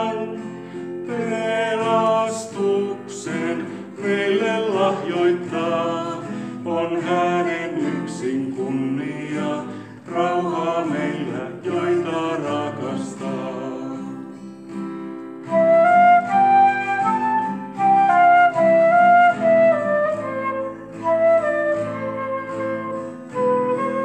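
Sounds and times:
strummed acoustic guitar: 0:00.0 - 0:24.0
flute melody: 0:15.3 - 0:24.0.

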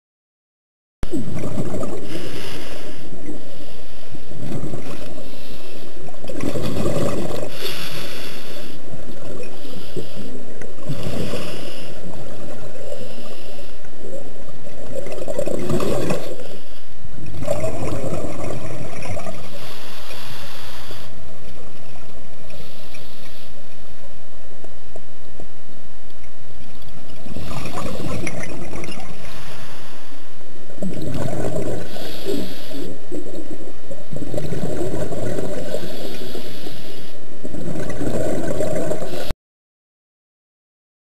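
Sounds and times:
exhaled bubbles gurgling: 0:01.0 - 0:23.7, 0:26.2 - 0:39.3
regulator inhalation hiss: 0:07.4 - 0:13.9, 0:19.4 - 0:21.4, 0:22.5 - 0:23.9, 0:29.1 - 0:30.4, 0:31.7 - 0:33.1, 0:35.6 - 0:37.4.

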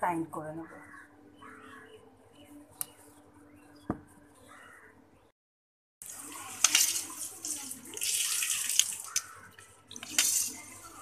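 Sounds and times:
wet sloshing and squelching: 0:06.1 - 0:10.8.

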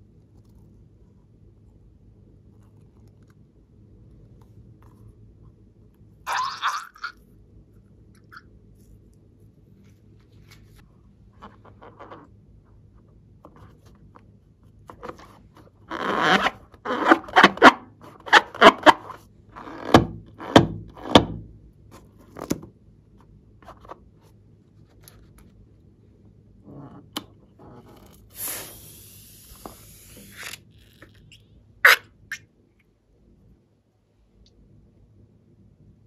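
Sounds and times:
faint handling sounds: 0:08.5 - 0:15.9, 0:21.8 - 0:31.4
balloon squeaking and rubbing: 0:15.8 - 0:21.2, 0:27.6 - 0:32.5.

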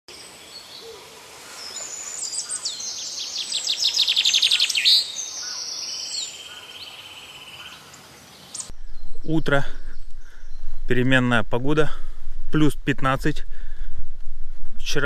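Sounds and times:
songbirds singing: 0:00.1 - 0:11.4.

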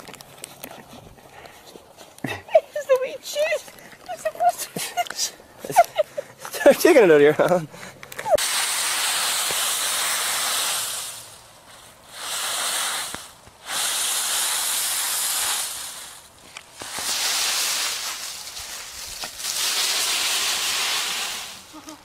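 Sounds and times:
dog thrashing through dry leaves: 0:12.2 - 0:21.8.

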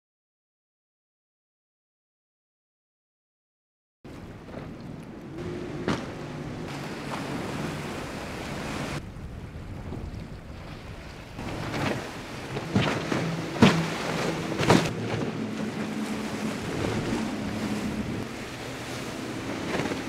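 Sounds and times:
faint engine drone: 0:04.1 - 0:10.6, 0:11.2 - 0:20.0
hull slap: 0:04.1 - 0:20.0
rushing spray and wake: 0:04.1 - 0:20.0.

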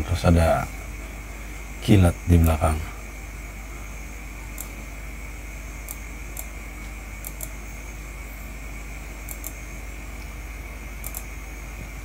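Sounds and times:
steady hum and hiss: 0:00.0 - 0:12.0
computer mouse clicking: 0:07.2 - 0:07.6, 0:09.3 - 0:09.6, 0:11.0 - 0:11.3.

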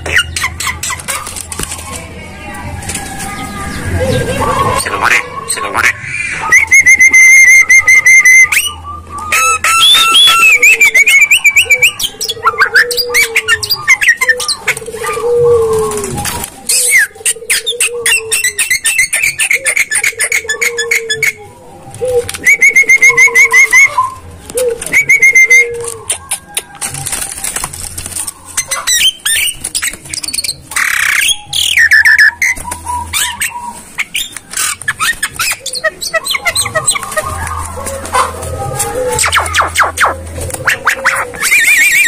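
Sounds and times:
myna bird calling: 0:00.0 - 0:42.0.

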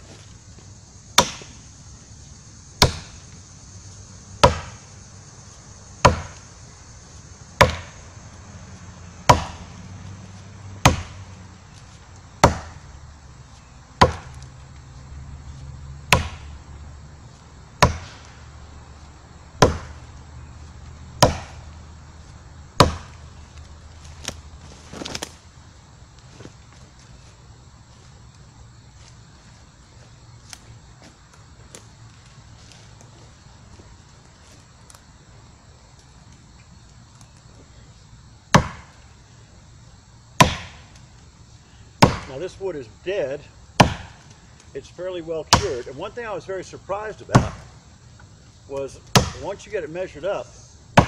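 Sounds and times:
tomahawk chopping wood: 0:01.1 - 0:01.6, 0:02.8 - 0:03.2, 0:04.4 - 0:04.9, 0:06.0 - 0:06.5, 0:07.6 - 0:08.0, 0:09.2 - 0:09.7, 0:10.8 - 0:12.9, 0:14.0 - 0:14.4, 0:16.1 - 0:16.5, 0:17.8 - 0:18.4, 0:19.6 - 0:20.1, 0:21.2 - 0:21.7, 0:22.8 - 0:23.3, 0:24.2 - 0:25.4, 0:38.5 - 0:39.0, 0:40.4 - 0:41.0, 0:42.0 - 0:42.5, 0:43.8 - 0:44.3, 0:45.5 - 0:46.0, 0:47.3 - 0:47.8, 0:48.8 - 0:49.7.

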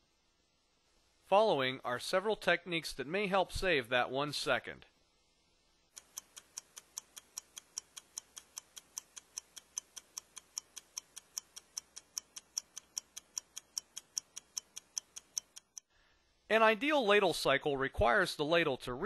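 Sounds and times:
stopwatch ticking: 0:05.9 - 0:15.9.

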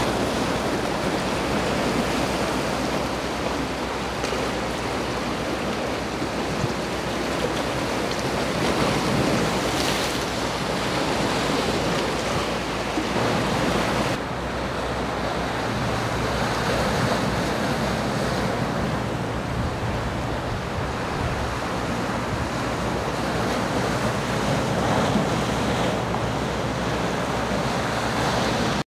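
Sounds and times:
wind and waves: 0:00.0 - 0:28.8
wind buffeting microphone: 0:15.3 - 0:28.8.

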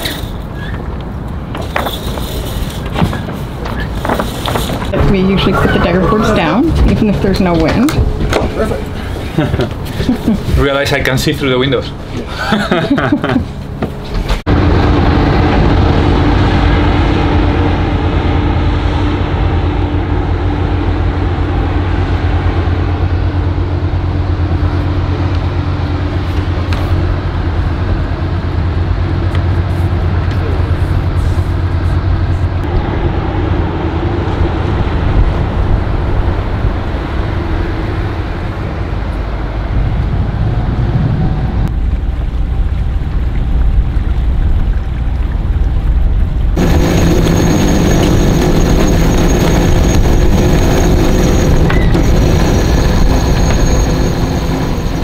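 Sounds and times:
boat diesel engine humming: 0:00.0 - 0:55.0.

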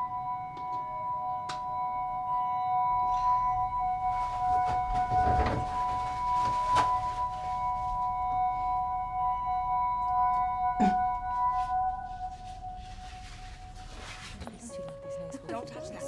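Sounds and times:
ringing drone of held tones: 0:00.0 - 0:16.0
soft handling noises: 0:11.6 - 0:15.7.

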